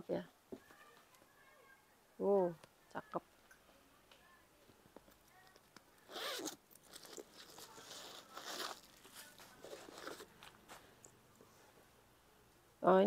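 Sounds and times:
handbag rustling and crinkling: 6.0s - 10.8s.

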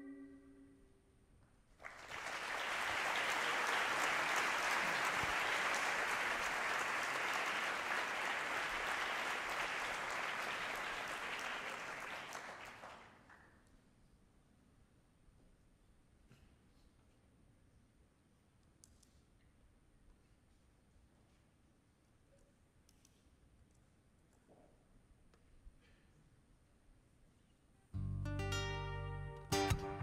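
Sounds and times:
audience applauding: 1.8s - 13.4s.

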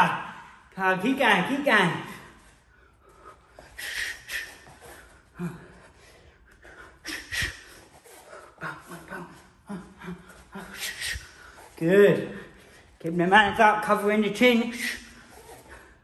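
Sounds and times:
hard breathing: 2.1s - 13.0s, 14.7s - 16.0s.

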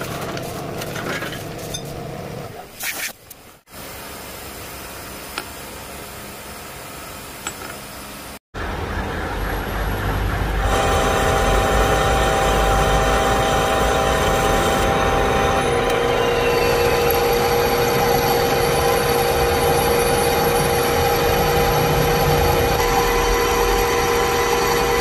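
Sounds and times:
lathe gear whine: 8.6s - 25.0s
machine hum: 8.6s - 25.0s
boring bar cutting steel: 10.6s - 25.0s.

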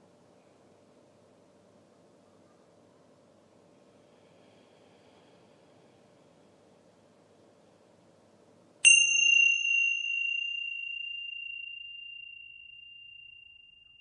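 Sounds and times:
bell ringing: 8.8s - 14.0s.

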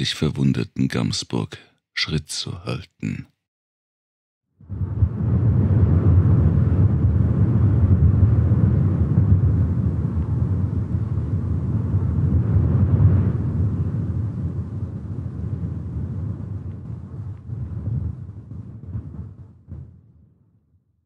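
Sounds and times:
deep steady rumbling: 4.6s - 20.0s.

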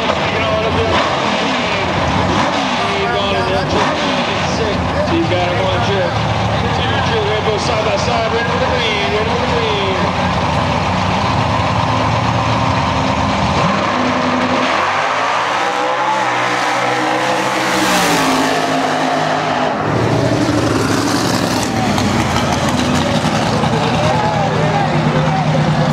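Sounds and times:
racing cars accelerating hard: 0.0s - 10.4s, 13.2s - 25.9s
heavy low engine rumble: 1.6s - 14.5s, 19.7s - 25.9s.

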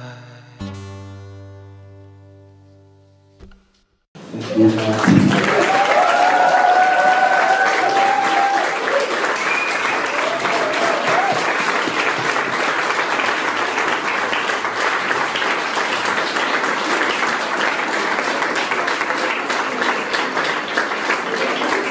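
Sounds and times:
audience applauding: 4.2s - 21.9s
voice calling out: 4.3s - 5.6s.

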